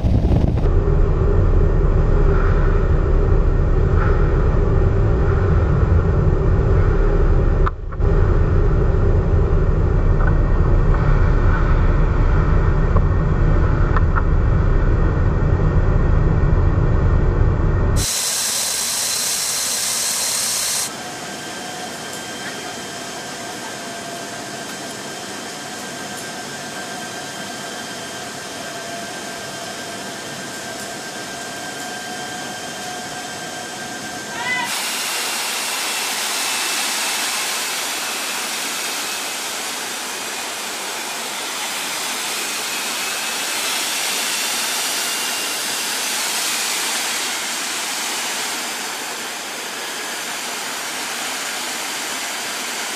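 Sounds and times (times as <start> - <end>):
aircraft wind and engine rush: 0.0 - 52.9
cabin hiss: 18.0 - 23.1.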